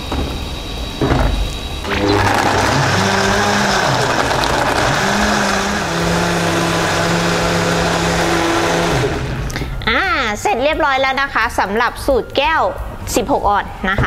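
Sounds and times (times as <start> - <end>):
blender crushing ice: 1.9 - 9.6.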